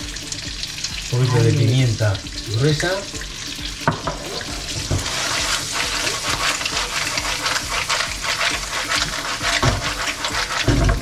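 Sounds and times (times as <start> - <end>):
snails sizzling in frying pan: 0.0 - 11.0
pan being shaken: 5.0 - 11.0.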